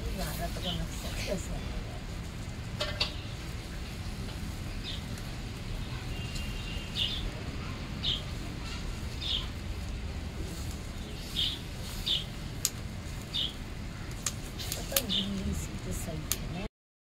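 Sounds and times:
low background noise: 0:00.0 - 0:16.7
small bird chirping: 0:05.8 - 0:09.6, 0:10.9 - 0:12.4, 0:13.2 - 0:15.6.

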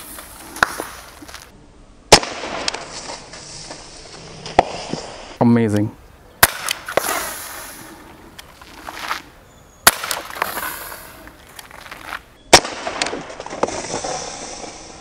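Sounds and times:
air pistol shots: 0:02.1 - 0:02.8, 0:06.4 - 0:07.3, 0:09.8 - 0:10.8, 0:12.5 - 0:14.0.

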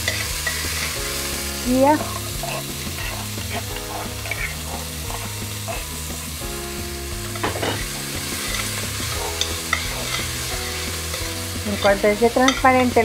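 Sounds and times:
metal spoon scraping pot: 0:00.0 - 0:01.0, 0:02.0 - 0:06.0, 0:07.4 - 0:12.8
onion and garlic sizzling: 0:00.0 - 0:13.0.

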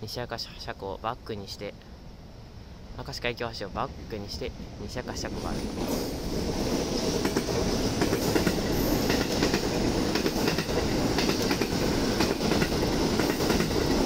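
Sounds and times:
train wheels rumbling on rails: 0:03.8 - 0:14.0
wheels clicking over rail joints: 0:05.8 - 0:14.0.

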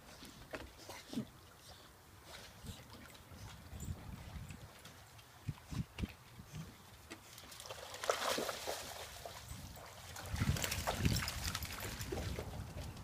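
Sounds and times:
dogs splashing through water: 0:00.4 - 0:13.0.

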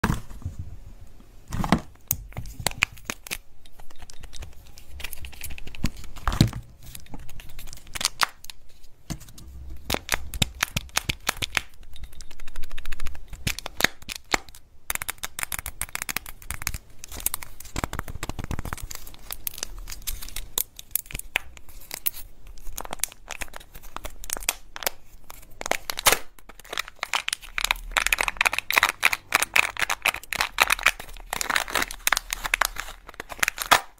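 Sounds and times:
wrappers crinkling and tearing: 0:12.4 - 0:33.9.

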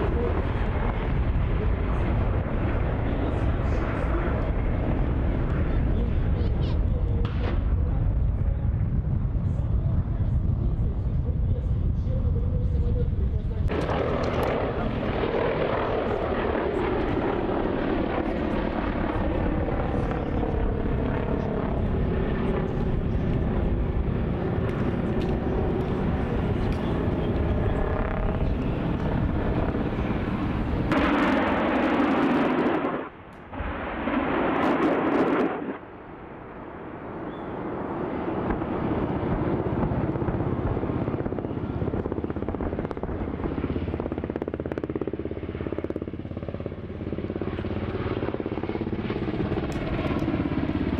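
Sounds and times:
helicopter flying past: 0:00.0 - 0:50.9
rockets firing blasts: 0:28.3 - 0:40.8.

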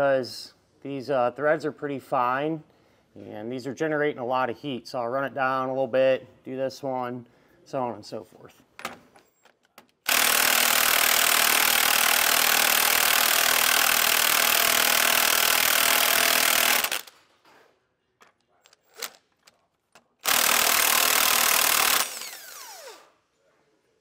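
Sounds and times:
impact wrench running: 0:10.0 - 0:17.2, 0:20.2 - 0:23.2.

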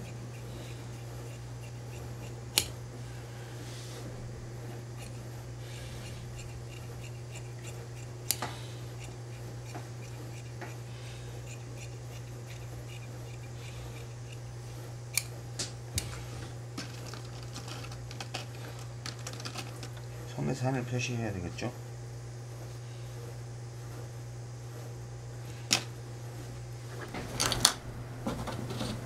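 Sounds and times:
shears snipping fabric: 0:00.0 - 0:02.9, 0:03.7 - 0:19.0
steady low hum: 0:00.0 - 0:29.0.

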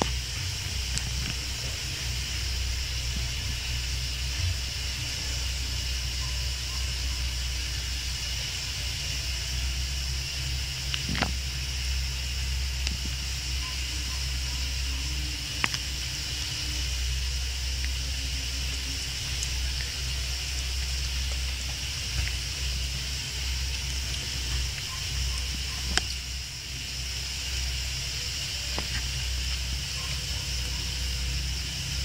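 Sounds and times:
recording hiss and hum: 0:00.0 - 0:32.0.

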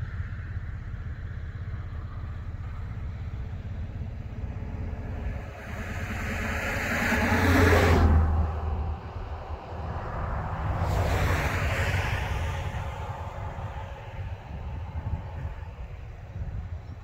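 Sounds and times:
car road noise: 0:00.0 - 0:17.0
vehicle passing by: 0:01.8 - 0:16.8.

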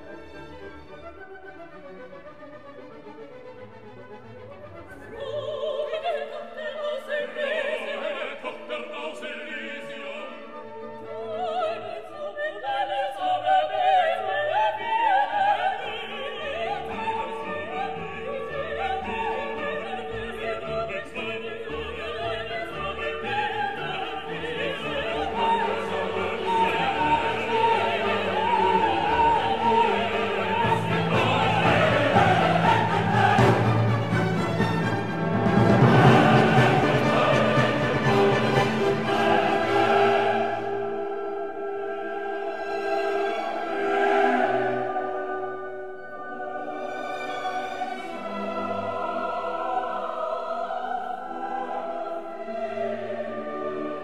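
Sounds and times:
orchestra playing: 0:00.0 - 0:05.9, 0:13.2 - 0:54.0
operatic voice singing: 0:05.1 - 0:10.6, 0:11.5 - 0:34.3, 0:35.7 - 0:40.8.

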